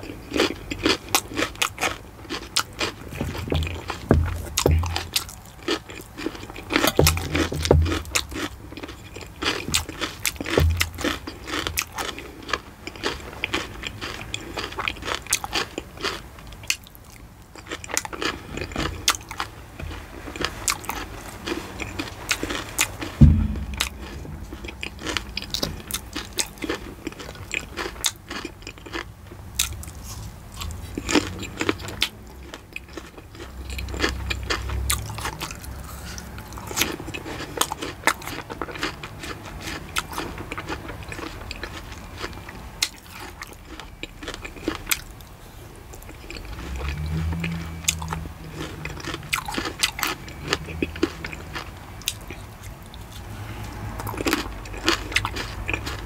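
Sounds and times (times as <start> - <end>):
crunchy chewing: 0.0 - 56.0
heavy thump: 3.2 - 5.0, 23.1 - 24.7.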